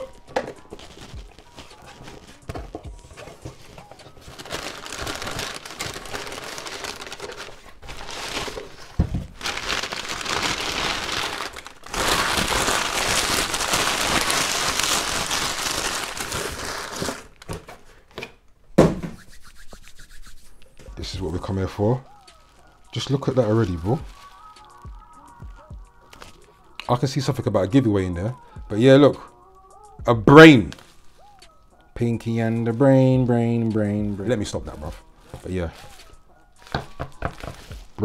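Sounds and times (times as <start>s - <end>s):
bubble wrap crinkling: 0.0s - 17.9s, 19.2s - 27.6s, 32.8s - 38.0s
thump: 18.8s - 19.2s.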